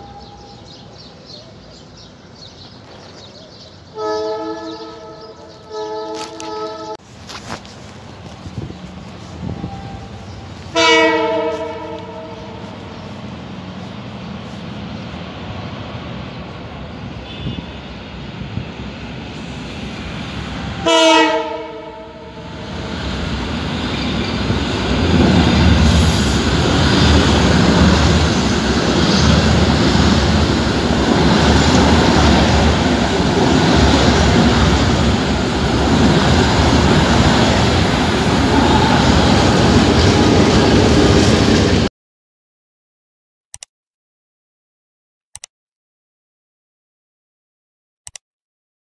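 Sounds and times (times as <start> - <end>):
train coaches rumbling over rails: 0.0 - 41.9
train horn: 3.9 - 7.0, 9.5 - 12.9, 17.2 - 18.0, 20.7 - 22.5, 38.3 - 40.3.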